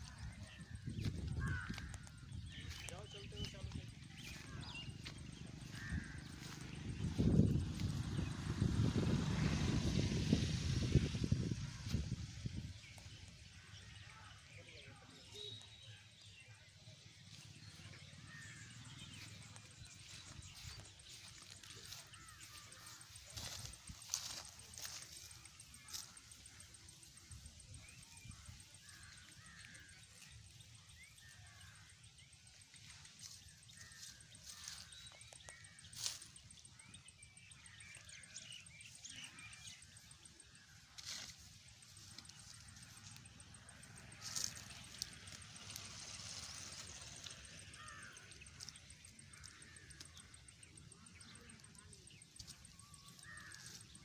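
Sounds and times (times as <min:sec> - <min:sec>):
bird chirps: 0:14.3 - 0:16.7
high insect trill: 0:18.2 - 0:54.0.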